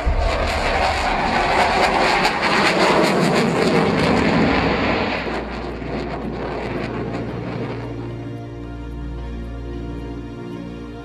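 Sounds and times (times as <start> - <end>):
fighter jet roar: 0.0 - 8.4
steady low drone: 0.0 - 11.0.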